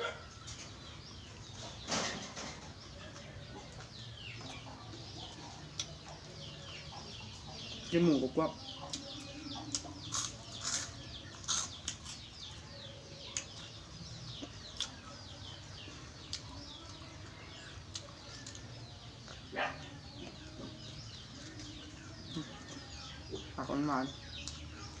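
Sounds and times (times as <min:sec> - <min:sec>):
chickens clucking: 0:00.0 - 0:25.0
crunchy chewing: 0:03.1 - 0:06.3, 0:08.8 - 0:23.6.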